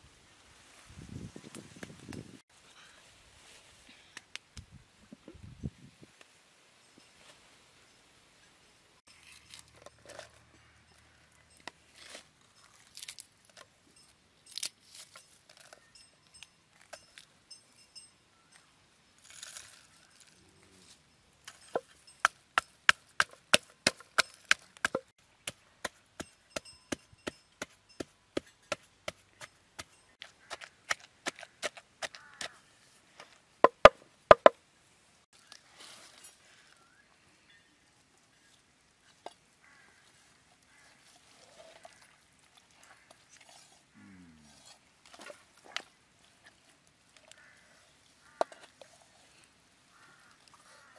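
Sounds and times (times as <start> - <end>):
pestle pounding in wooden mortar: 22.2 - 29.2, 33.6 - 34.6.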